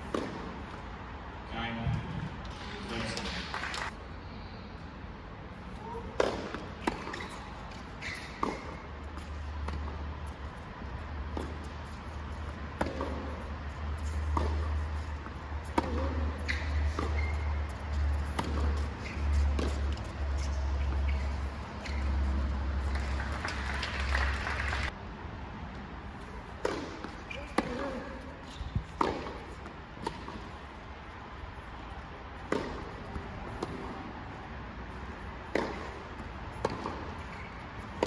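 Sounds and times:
tennis ball struck and bouncing: 0:00.0 - 0:00.8, 0:06.1 - 0:23.0, 0:26.5 - 0:28.0, 0:28.8 - 0:30.6, 0:32.4 - 0:34.1, 0:35.4 - 0:38.0.

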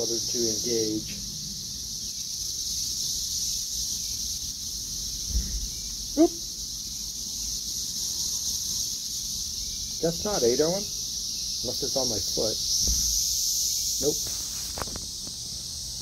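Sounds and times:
cicadas droning: 0:00.0 - 0:16.0
faint low thud: 0:05.2 - 0:05.8, 0:12.7 - 0:13.4.

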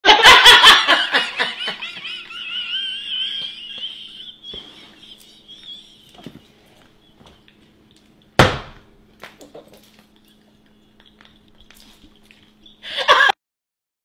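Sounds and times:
young man laughing hard: 0:00.0 - 0:07.2, 0:12.8 - 0:13.4.

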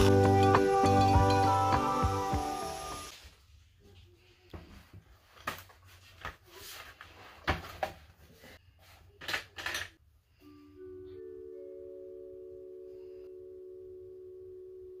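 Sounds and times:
soft mallet percussion music: 0:00.0 - 0:03.1.

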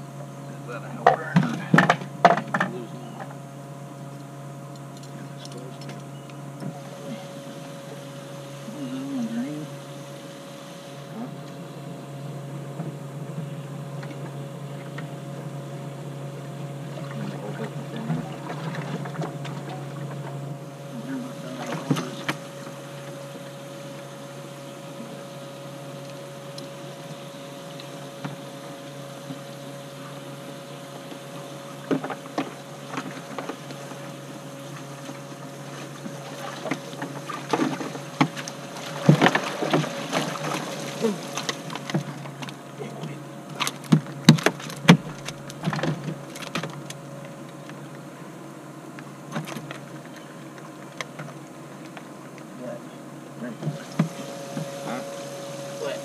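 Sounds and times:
electric boat motor humming: 0:00.0 - 0:56.0
knocks and clicks on boat: 0:01.0 - 0:03.4, 0:12.6 - 0:48.0.

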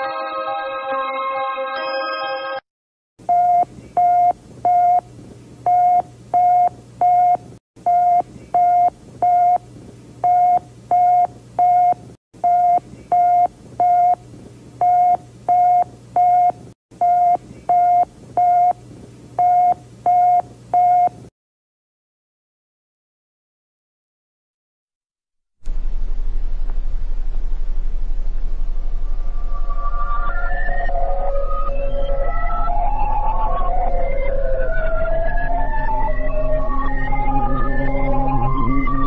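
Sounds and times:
chime-like musical tone: 0:00.0 - 0:02.6
low steady hum: 0:25.6 - 0:38.8.

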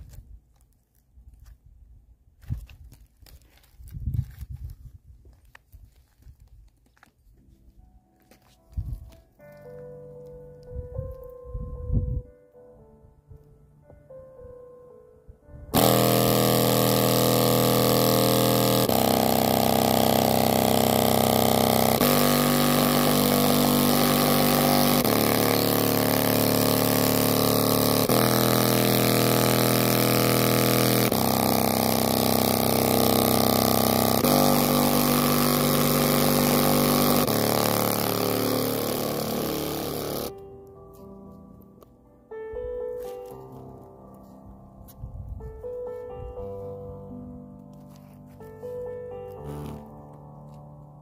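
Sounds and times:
distorted bass notes from speaker: 0:15.7 - 0:40.3, 0:49.3 - 0:50.1.

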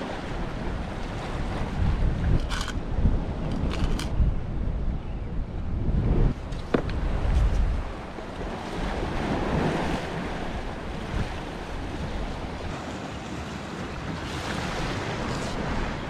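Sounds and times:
ocean waves on rocks: 0:00.0 - 0:04.2, 0:06.0 - 0:16.0
wind on microphone: 0:00.0 - 0:16.0.

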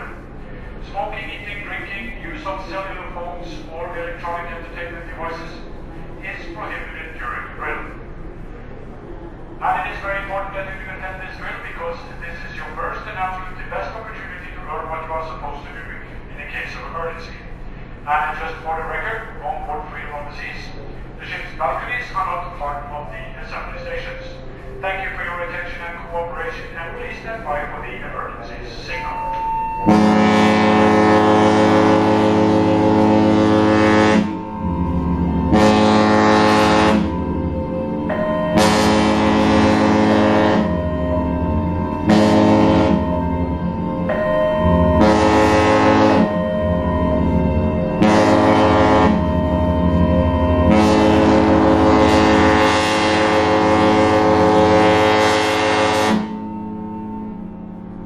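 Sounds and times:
faint hum: 0:00.0 - 0:52.6
ship horn blasts: 0:28.2 - 0:58.0
lower tone: 0:28.9 - 0:54.3.

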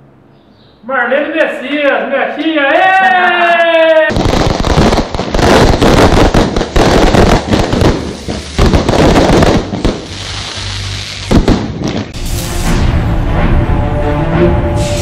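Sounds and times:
firecrackers popping: 0:04.1 - 0:12.2
sharp bangs: 0:04.1 - 0:13.8.

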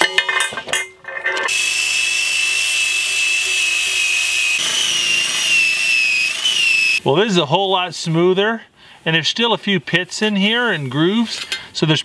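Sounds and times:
drill sanding iron: 0:01.5 - 0:07.0.

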